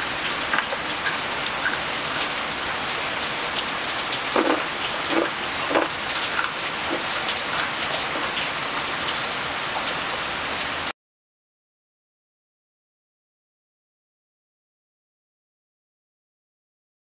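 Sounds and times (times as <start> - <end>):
steady rain falling: 0.0 - 10.9.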